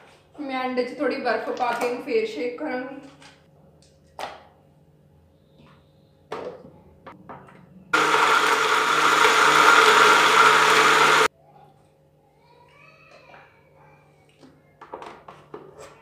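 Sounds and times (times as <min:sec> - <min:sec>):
electric blender blending ice: 0:08.0 - 0:11.3.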